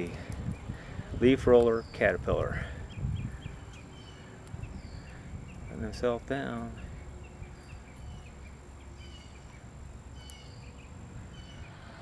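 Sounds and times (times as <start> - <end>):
wind rumble on microphone: 0.0 - 12.0
faint bird chirps: 6.7 - 12.0.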